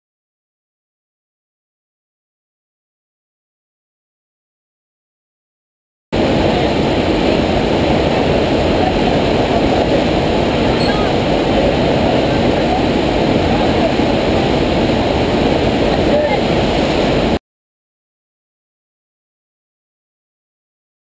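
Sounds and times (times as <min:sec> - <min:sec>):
water rushing: 0:06.2 - 0:17.4.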